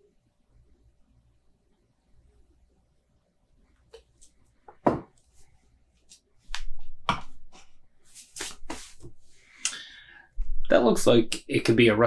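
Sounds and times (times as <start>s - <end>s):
can and glass knocking on wood: 4.8s - 5.1s.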